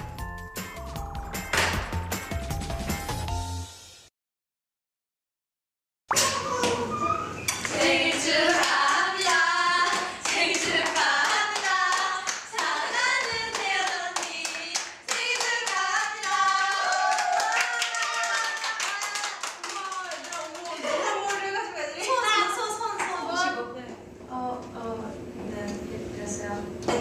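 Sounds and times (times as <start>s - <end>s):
hand clapping: 1.5s - 2.0s
women singing unaccompanied: 7.7s - 17.4s.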